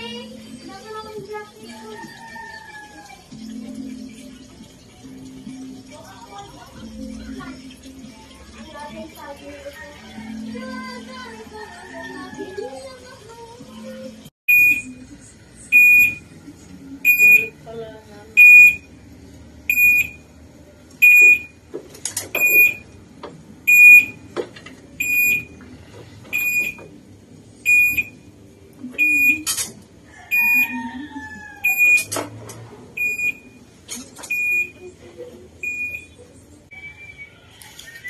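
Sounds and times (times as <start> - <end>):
high warning beeps: 14.5 - 15.0, 15.7 - 16.2, 17.0 - 17.6, 18.4 - 18.8, 19.7 - 20.2, 21.0 - 21.6, 22.4 - 22.9, 23.7 - 24.2, 25.0 - 25.6, 26.3 - 26.8, 27.6 - 28.2, 29.0 - 29.6, 30.3 - 30.8, 31.6 - 32.1, 33.0 - 33.6, 34.3 - 34.8, 35.6 - 36.3.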